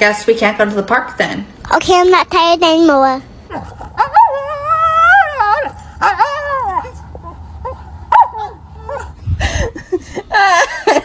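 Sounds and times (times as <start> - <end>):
husky yowling: 3.5 - 9.2.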